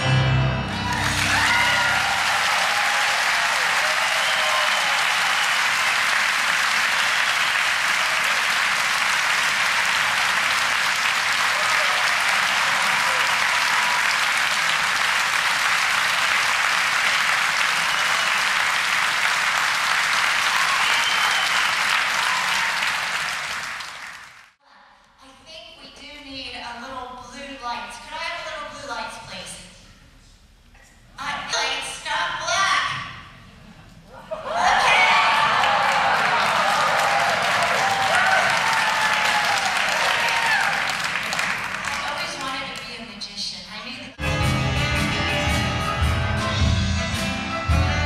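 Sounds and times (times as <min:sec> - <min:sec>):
audience applauding: 0:00.6 - 0:24.6, 0:34.5 - 0:42.8.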